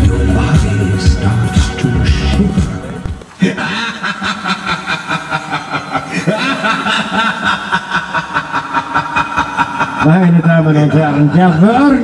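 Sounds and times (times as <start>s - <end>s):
witch cackling laugh: 3.4s - 12.0s.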